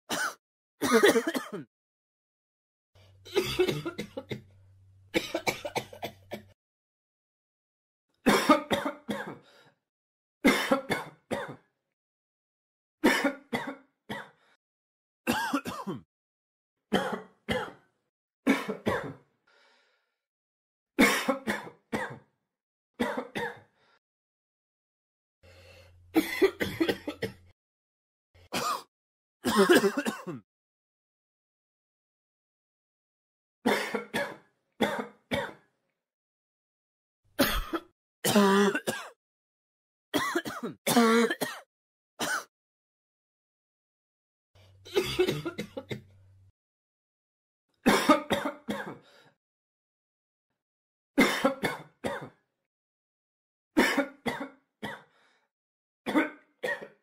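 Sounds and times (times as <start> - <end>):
person coughing: 0.1 - 1.7, 3.3 - 4.4, 5.2 - 6.6, 8.3 - 9.4, 10.5 - 11.7, 13.0 - 14.4, 15.3 - 16.1, 18.5 - 19.2, 21.0 - 22.2, 26.2 - 27.4, 28.5 - 30.4, 33.7 - 35.6, 37.4 - 39.2, 40.2 - 42.5, 44.9 - 46.1, 47.9 - 49.0, 51.2 - 52.4, 53.8 - 55.1.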